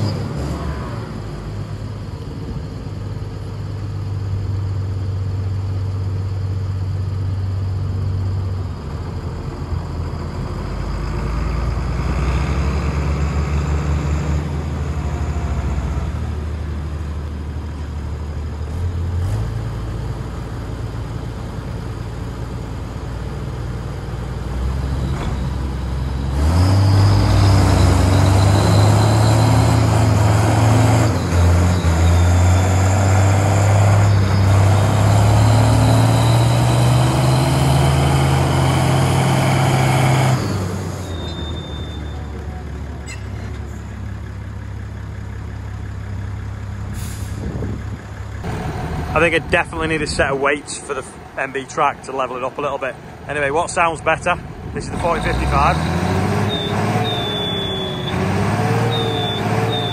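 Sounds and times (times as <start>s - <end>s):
tractor engines under load: 0.0s - 59.9s
thin high whistle: 41.0s - 42.4s, 56.5s - 58.2s, 58.8s - 59.9s.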